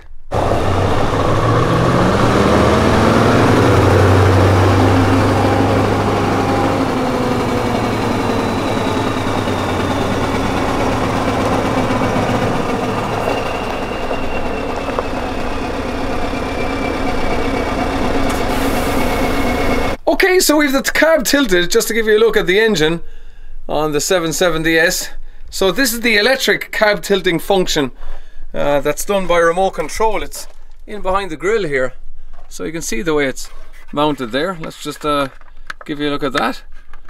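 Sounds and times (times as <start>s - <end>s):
diesel truck engine revving and idling: 0.3s - 20.0s.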